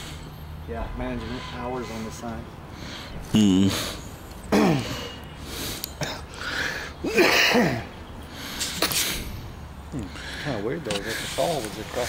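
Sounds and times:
person sneezing: 3.3s - 5.2s, 7.0s - 7.9s.

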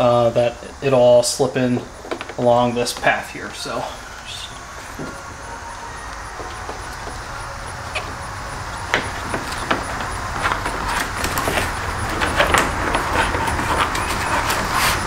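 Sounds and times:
steady low rumble: 3.3s - 13.4s.

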